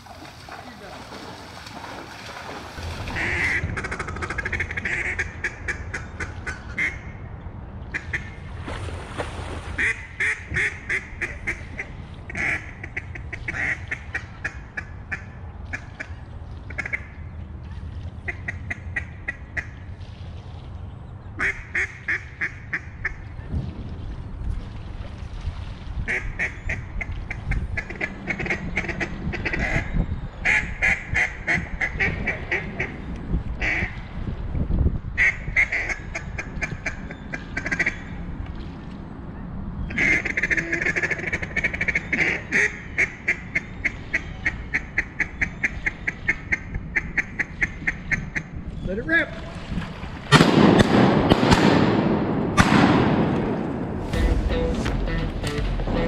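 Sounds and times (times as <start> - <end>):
low steady rumble: 1.9 - 8.7, 50.3 - 56.0
duck quacking: 3.1 - 7.0, 54.1 - 56.0.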